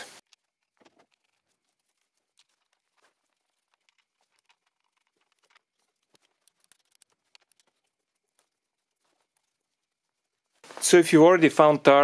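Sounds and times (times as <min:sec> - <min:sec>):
faint clicks and rustles of hands: 0:00.0 - 0:11.0.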